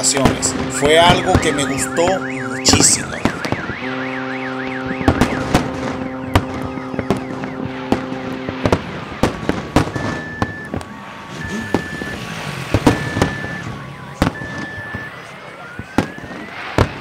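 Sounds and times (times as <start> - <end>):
ship's horn blast: 0.0 - 11.7
fireworks banging: 0.0 - 17.0
warbling alarm: 0.0 - 17.0
short high beeps: 0.7 - 5.2, 10.0 - 13.7.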